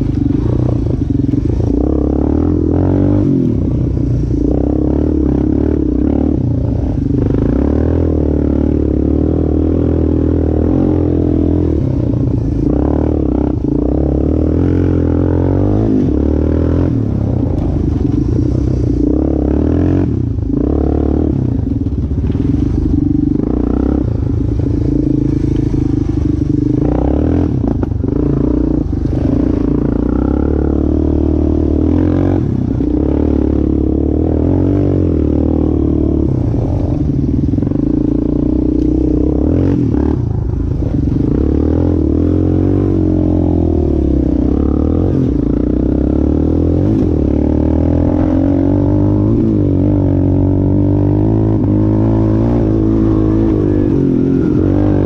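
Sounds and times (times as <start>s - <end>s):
quad bike engine running: 0.0s - 55.0s
knocks and clatter over rough ground: 21.6s - 26.6s.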